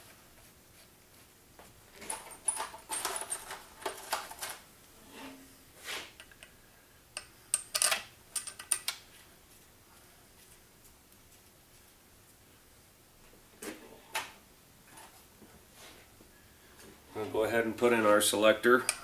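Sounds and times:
metal bolts clinking and rattling: 2.0 - 4.5, 7.2 - 9.0.

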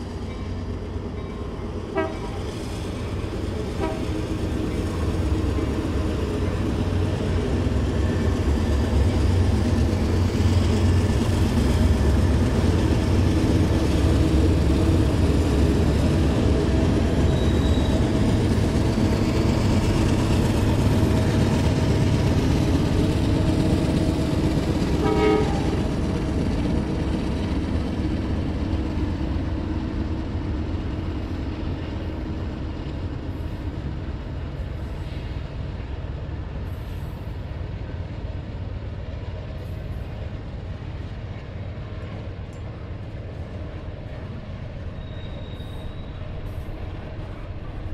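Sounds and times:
diesel locomotives rumbling: 0.0 - 47.9.

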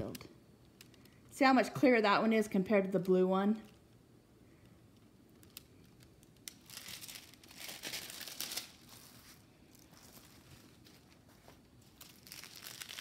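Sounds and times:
plastic packaging crinkling: 5.3 - 13.0.

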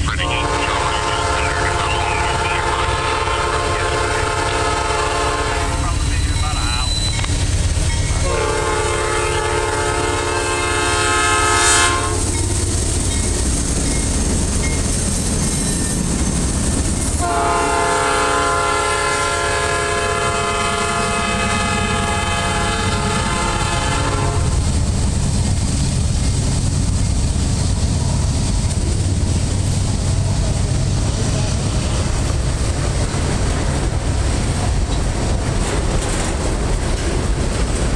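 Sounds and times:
freight train rumbling on rails: 0.0 - 37.9
train air horn blasts: 0.2 - 6.0, 8.2 - 12.4, 17.2 - 24.6.

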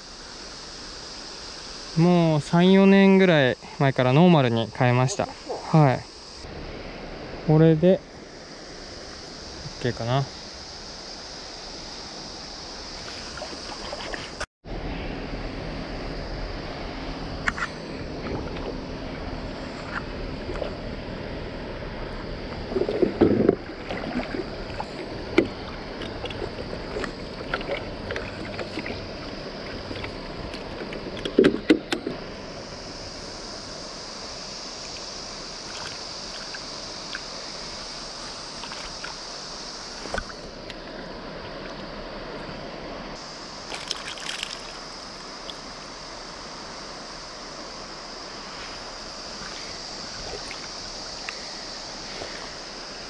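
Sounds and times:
high hiss: 0.0 - 53.0
river water rushing: 17.7 - 31.2, 33.0 - 53.0.

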